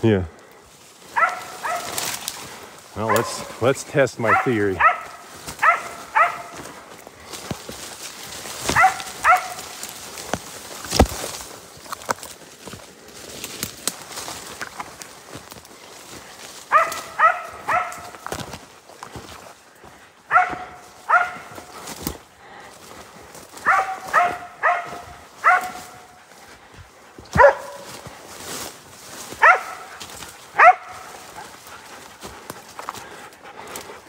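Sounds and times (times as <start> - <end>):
dog barking: 1.1 - 2.0, 3.0 - 3.6, 4.2 - 6.7, 8.6 - 9.7, 16.7 - 18.2, 20.3 - 21.8, 23.6 - 26.2, 27.3 - 28.0, 29.4 - 31.5.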